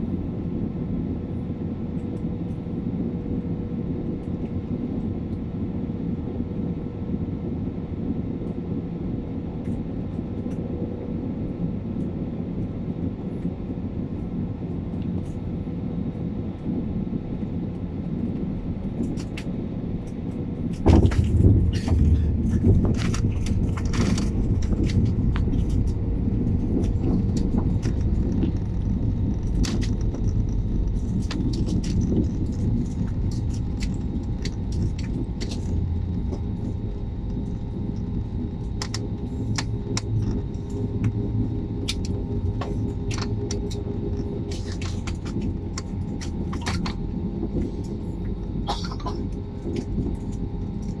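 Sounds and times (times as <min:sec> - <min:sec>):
aircraft cabin rumble: 0:00.0 - 0:51.0
faint steady hum: 0:00.0 - 0:51.0
sharp clicks and rattles: 0:20.7 - 0:51.0.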